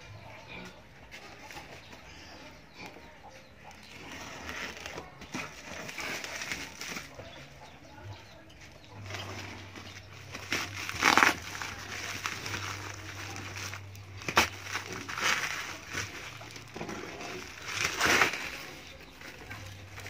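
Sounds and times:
bubble wrap rustling and crinkling: 3.8s - 7.6s, 8.6s - 20.0s.

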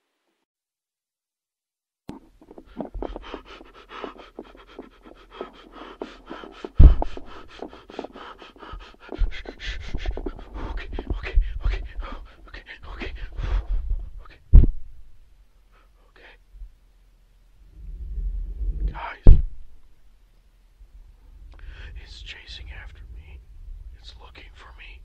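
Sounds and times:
heavy panting: 2.4s - 14.2s
loud thump: 6.8s - 7.3s, 14.5s - 14.8s, 19.2s - 19.6s.

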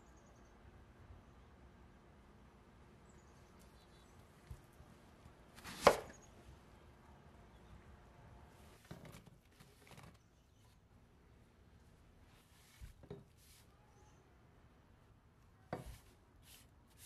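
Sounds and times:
knife chopping on wooden board: 5.6s - 6.1s, 15.7s - 16.1s.

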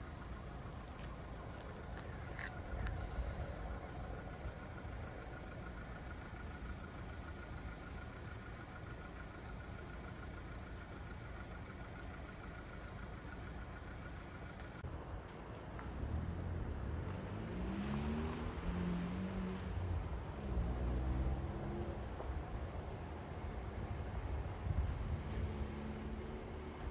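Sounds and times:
diesel engine idling: 0.0s - 15.6s, 19.7s - 25.2s.

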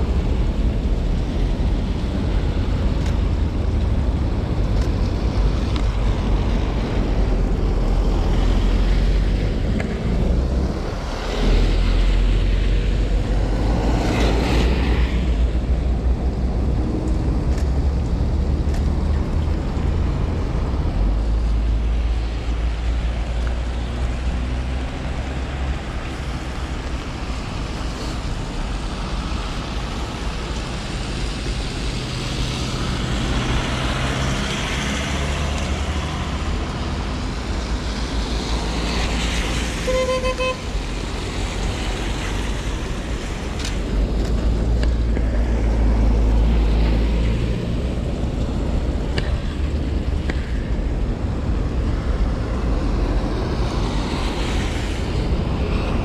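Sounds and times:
cars passing on wet road: 0.0s - 56.0s
low traffic rumble: 0.0s - 56.0s
car horn toot: 39.9s - 40.7s.

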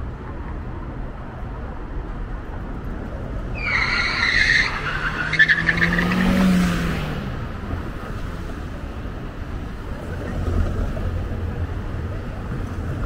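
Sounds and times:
street traffic: 0.0s - 13.0s
vehicle high-pitched squeal: 3.5s - 6.6s
low engine hum: 5.7s - 13.0s.

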